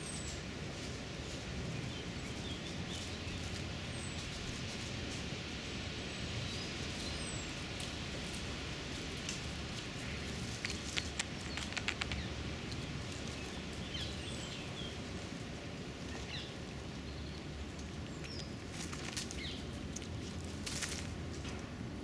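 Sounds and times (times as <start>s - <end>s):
sharp clicks: 10.6s - 12.3s.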